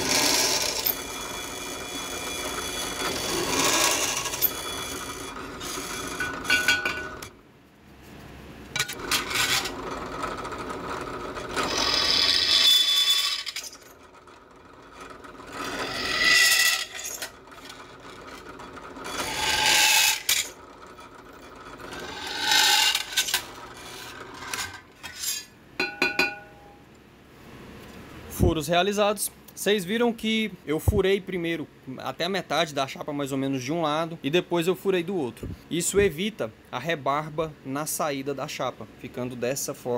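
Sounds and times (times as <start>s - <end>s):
drill press boring steel plate: 0.0s - 7.3s, 8.8s - 26.6s
metal plate clinking: 6.2s - 7.2s, 24.6s - 26.8s.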